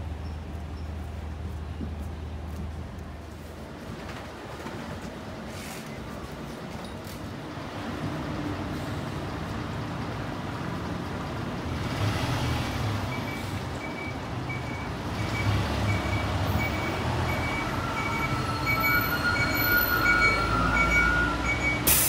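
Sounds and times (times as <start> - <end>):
bus engine idling: 0.0 - 11.9.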